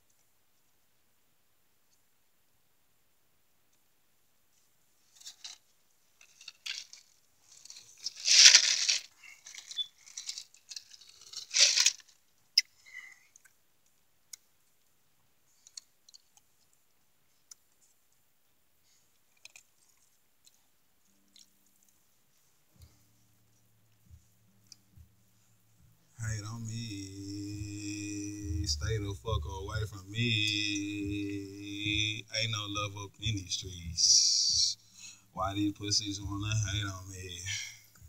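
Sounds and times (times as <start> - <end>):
rustling and crinkling: 4.5 - 12.6.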